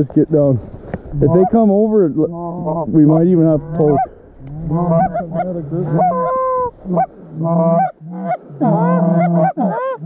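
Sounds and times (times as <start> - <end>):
goose calls honking: 1.2 - 1.7, 3.5 - 10.0.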